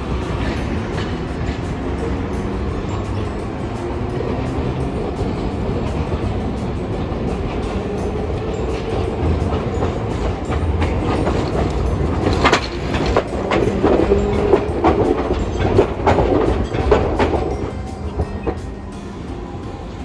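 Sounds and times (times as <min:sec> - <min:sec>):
tram motor hum: 0:00.0 - 0:20.0
tram rumbling: 0:00.0 - 0:20.0
wheel clicks and clacks: 0:04.4 - 0:18.6.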